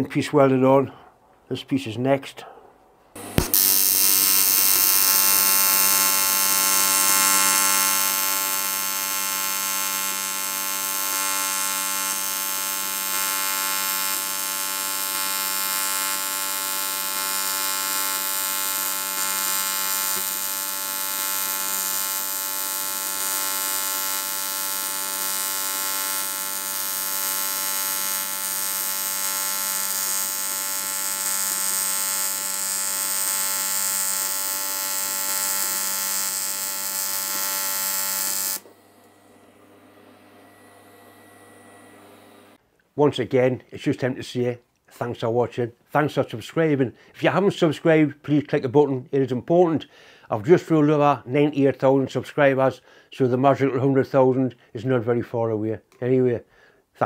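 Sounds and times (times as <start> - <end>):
welding arc buzzing: 3.2 - 40.3.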